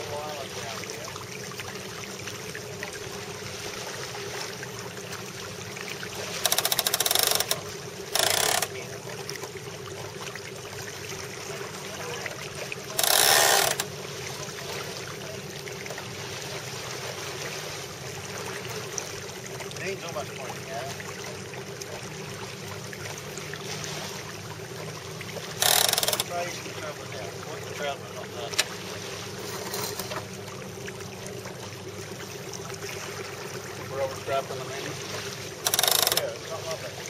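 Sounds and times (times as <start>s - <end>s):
rushing water: 0.0s - 37.0s
wind: 0.0s - 37.0s
ratchet clicking rapidly: 6.5s - 7.6s, 8.2s - 8.7s, 13.0s - 13.9s, 25.6s - 26.2s, 35.7s - 36.2s.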